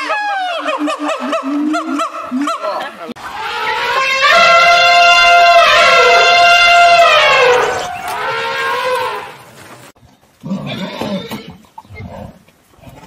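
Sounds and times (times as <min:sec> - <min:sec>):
elephant trumpeting: 0:00.0 - 0:09.5.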